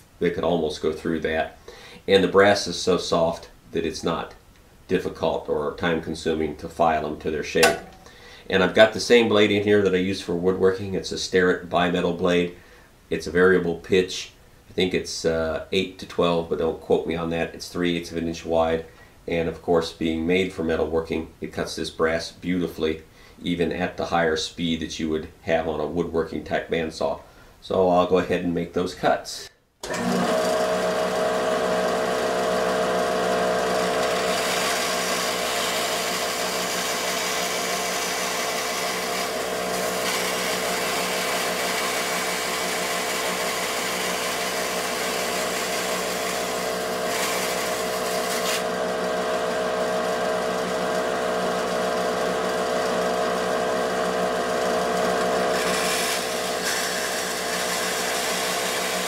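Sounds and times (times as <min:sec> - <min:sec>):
bandsaw motor humming: 0:07.6 - 0:08.2, 0:29.8 - 0:59.0
saw cutting metal sheet: 0:33.8 - 0:48.7, 0:55.5 - 0:59.0.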